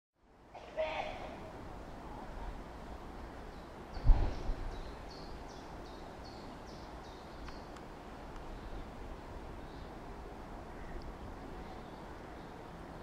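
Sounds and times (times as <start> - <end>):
bird chirping: 3.4 - 7.8.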